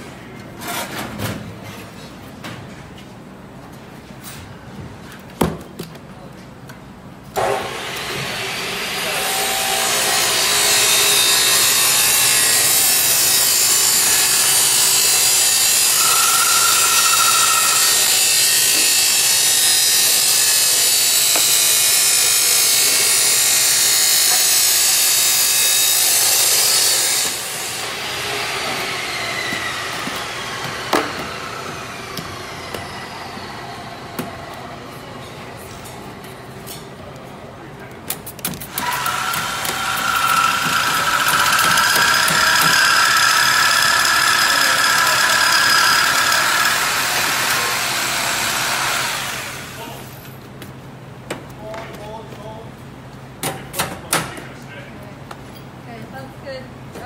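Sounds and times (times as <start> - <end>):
motor machine running and whining: 7.4 - 34.1, 38.7 - 49.8.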